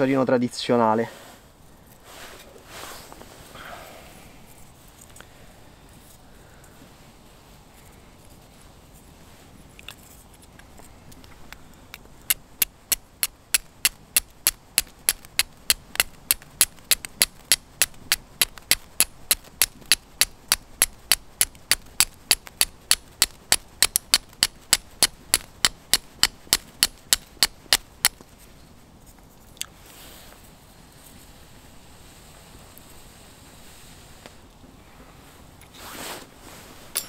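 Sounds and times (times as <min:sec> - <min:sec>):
steel striker scraping flint: 0:09.7 - 0:29.5.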